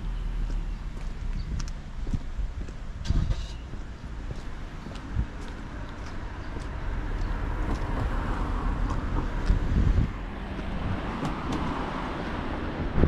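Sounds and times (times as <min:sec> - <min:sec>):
low rumble of traffic: 0:00.0 - 0:13.0
car passing close: 0:04.4 - 0:13.0.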